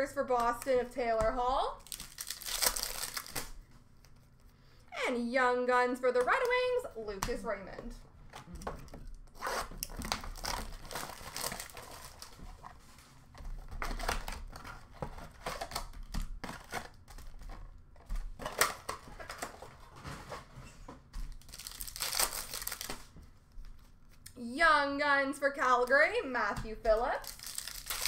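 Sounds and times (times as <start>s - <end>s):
wrappers tearing and crinkling: 1.8s - 3.6s, 9.3s - 12.4s, 21.3s - 23.1s, 27.2s - 28.0s.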